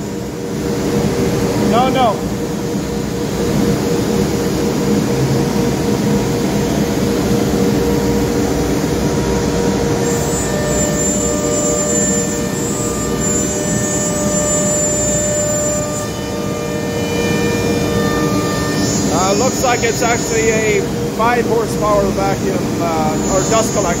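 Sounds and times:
high whine: 0:00.0 - 0:24.0
low mechanical hum: 0:00.0 - 0:24.0
router spindle cutting wood: 0:10.0 - 0:20.9.

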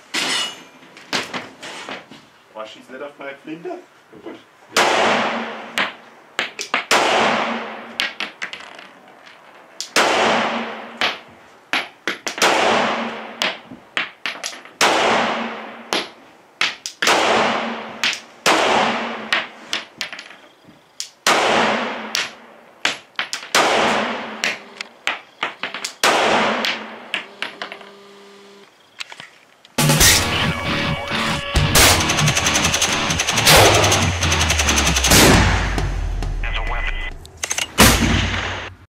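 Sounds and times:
pistol shots: 0:04.8 - 0:05.9, 0:06.8 - 0:07.9, 0:09.9 - 0:11.2, 0:12.4 - 0:13.6, 0:14.8 - 0:15.8, 0:17.0 - 0:19.5, 0:21.2 - 0:22.4, 0:23.4 - 0:24.6, 0:26.0 - 0:27.1, 0:31.7 - 0:36.2.

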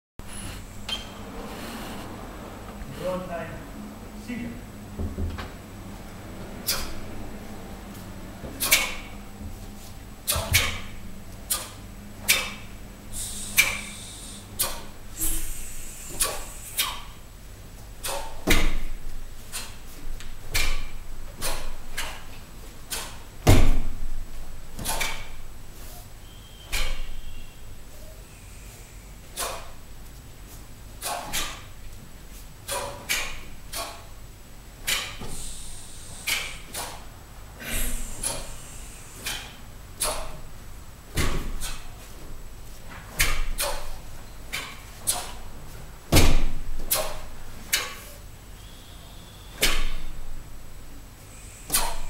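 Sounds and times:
uniforms snapping with strikes: 0:11.5 - 0:12.6, 0:20.5 - 0:22.2, 0:32.7 - 0:34.0.

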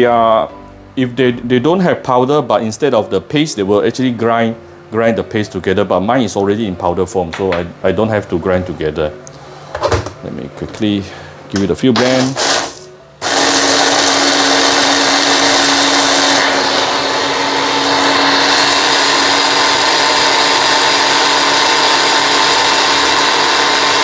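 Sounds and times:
hand blender motor whine: 0:12.0 - 0:24.0.

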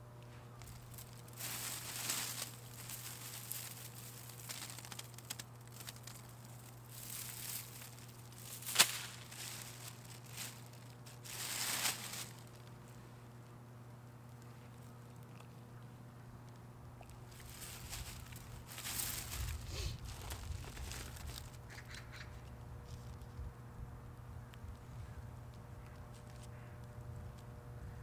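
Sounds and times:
hands rummaging through dry soil: 0:00.0 - 0:13.0, 0:17.1 - 0:21.8.

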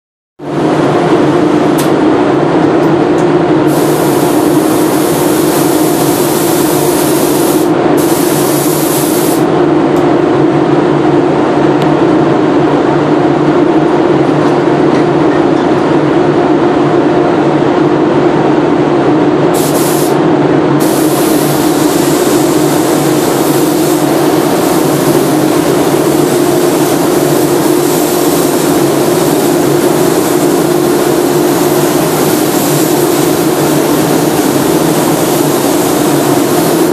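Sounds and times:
fan droning: 0:00.4 - 0:36.9
paint spray gun hissing: 0:03.7 - 0:09.5, 0:19.6 - 0:20.2, 0:20.8 - 0:36.9.

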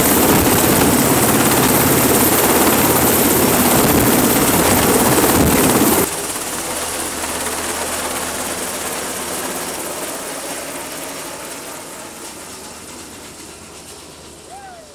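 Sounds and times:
helicopter rotor and engines: 0:00.0 - 0:14.9.

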